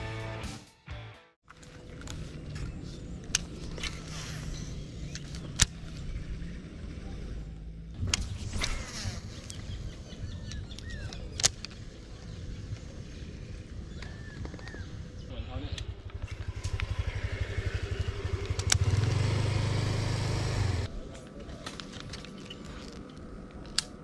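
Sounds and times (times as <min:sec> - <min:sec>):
low steady rumble: 0:11.8 - 0:20.9.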